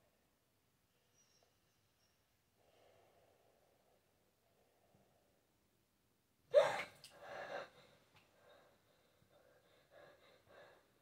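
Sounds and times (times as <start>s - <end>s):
person gasping: 6.5s - 11.0s.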